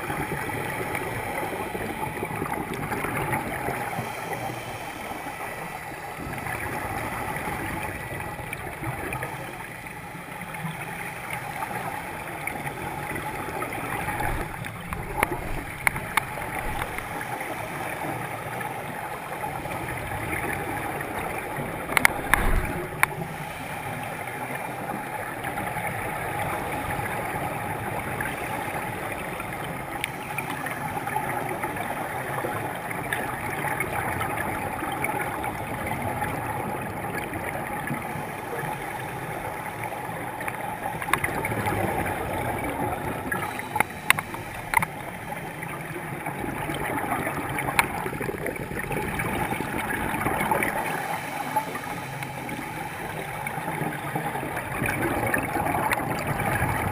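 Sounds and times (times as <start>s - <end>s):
underwater hiss: 0.0s - 34.2s, 35.5s - 56.9s
sharp clicks underwater: 10.6s - 17.4s, 19.6s - 23.3s, 26.9s - 38.1s, 39.6s - 56.9s.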